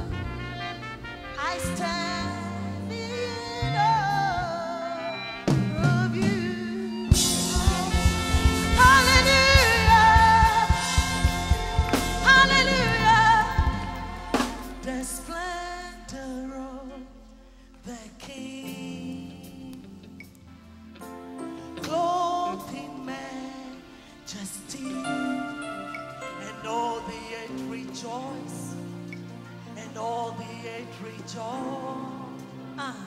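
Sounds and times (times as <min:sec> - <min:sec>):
held keyboard notes: 0:00.0 - 0:15.8
woman singing lead: 0:00.0 - 0:20.3, 0:21.5 - 0:33.0
choir voices: 0:03.0 - 0:17.0
drums: 0:05.4 - 0:15.5.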